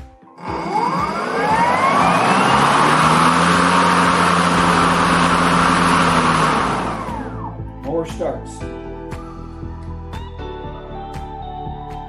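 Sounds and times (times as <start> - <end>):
electric lawnmower running: 0.4 - 7.6.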